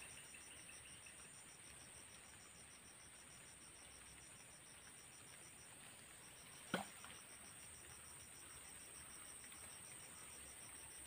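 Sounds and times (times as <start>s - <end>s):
insects chirping: 0.0s - 11.0s.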